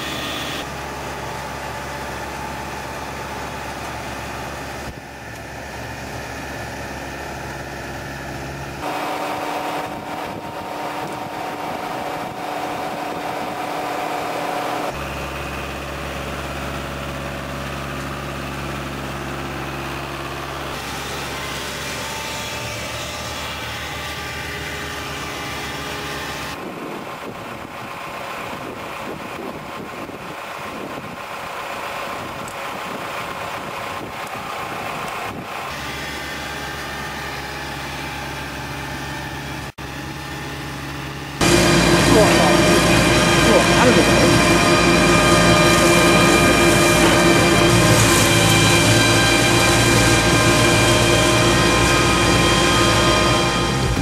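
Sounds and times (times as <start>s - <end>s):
tractor engine running: 0.0s - 54.0s
flail mower head running: 41.4s - 54.0s.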